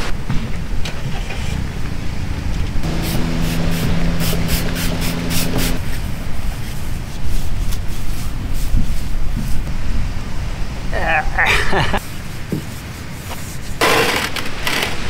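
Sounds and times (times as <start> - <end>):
steady low hum: 2.6 - 8.0
spray bottle squirts: 2.9 - 5.9.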